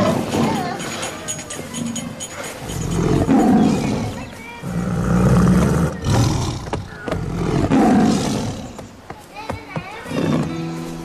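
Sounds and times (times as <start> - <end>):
animal roaring: 2.6 - 8.8.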